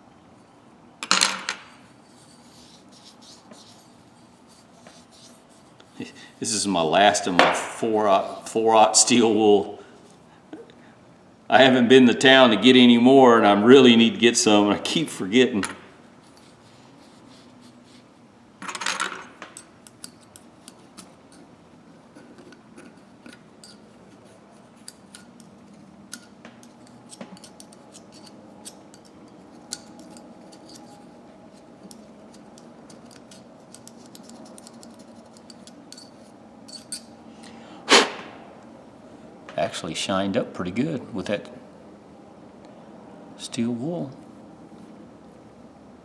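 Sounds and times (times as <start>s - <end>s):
metal tool scraping ratchet: 26.1s - 31.0s, 32.3s - 37.1s.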